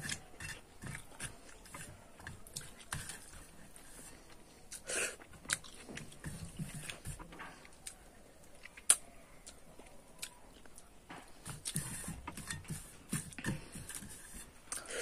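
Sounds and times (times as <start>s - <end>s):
fingers scraping metal plate: 0.0s - 4.2s, 11.6s - 14.6s
chewing: 0.0s - 11.8s.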